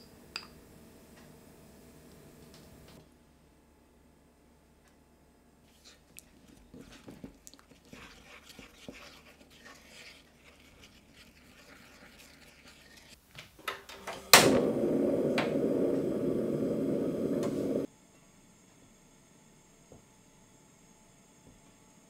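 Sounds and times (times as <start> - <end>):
wooden spoon scraping a bowl: 5.7 - 13.2
gas burner rushing: 13.9 - 17.9
sharp loud click: 14.4 - 14.7.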